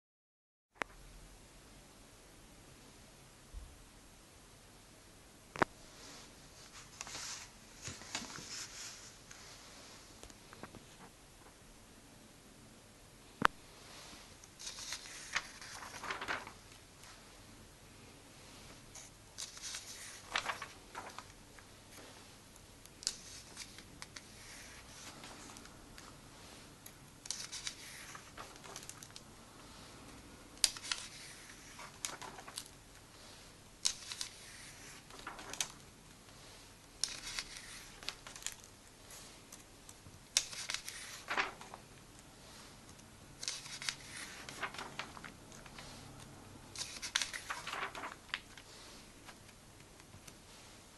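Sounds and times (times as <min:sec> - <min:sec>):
paper pages turning: 0:06.6 - 0:09.4, 0:14.4 - 0:17.2, 0:18.8 - 0:29.9, 0:30.6 - 0:50.6.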